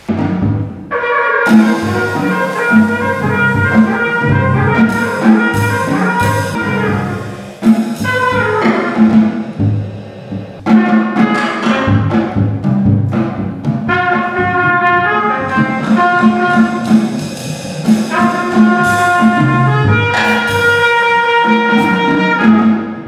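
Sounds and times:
drum kit playing: 0.0 - 23.0
trumpet playing long notes: 0.9 - 9.5, 13.9 - 17.0, 18.1 - 23.0.

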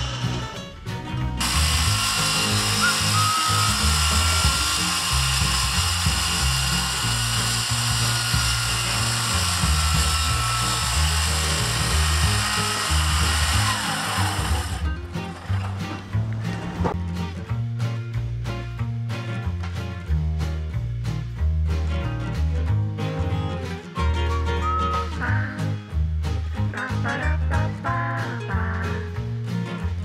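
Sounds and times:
background music: 0.0 - 30.0
circular saw cutting wood: 1.4 - 15.9.

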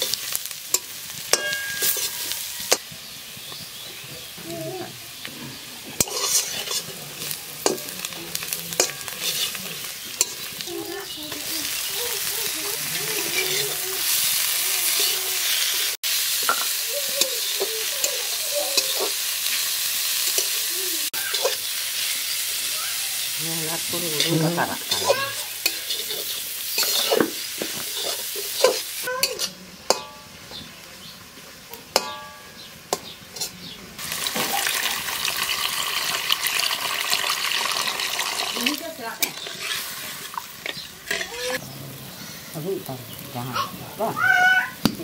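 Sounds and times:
water hissing in hot pan: 0.0 - 30.0, 34.0 - 41.6
vegetables sizzling in oil: 0.0 - 45.0
metal spatula scraping pan: 0.8 - 2.8, 5.5 - 10.6, 23.7 - 30.2, 39.2 - 41.6.

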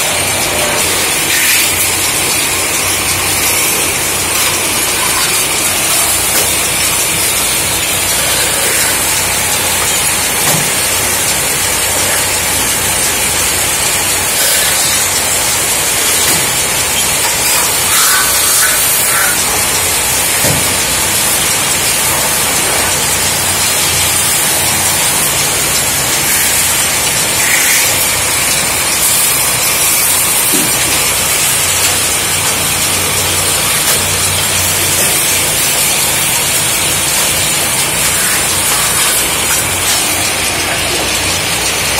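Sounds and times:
tool squealing on metal: 0.0 - 10.6, 16.9 - 19.6, 24.0 - 32.6
lathe hiss: 0.0 - 41.9
low motor hum: 0.0 - 41.9.

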